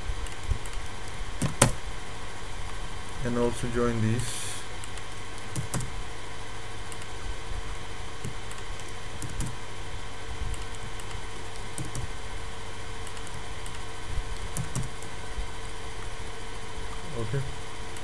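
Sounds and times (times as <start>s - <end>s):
background hum and hiss: 0.0s - 18.0s
keyboard and mouse clicks: 4.8s - 5.9s, 8.2s - 9.6s, 10.5s - 11.2s, 11.8s - 12.1s, 13.0s - 13.8s, 14.5s - 15.1s.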